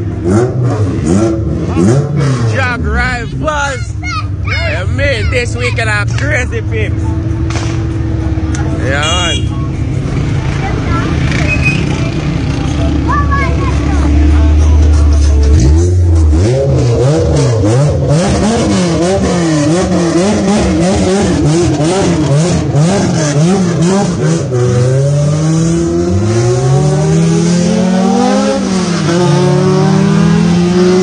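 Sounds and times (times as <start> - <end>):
car engine revving: 0.0 - 31.0
car pulling away: 9.8 - 31.0.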